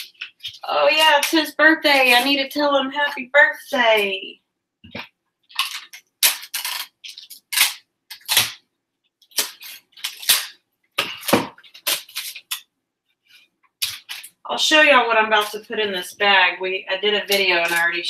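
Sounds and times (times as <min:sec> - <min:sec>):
packaging crinkling: 0:05.5 - 0:08.6, 0:09.2 - 0:12.6, 0:13.8 - 0:14.4.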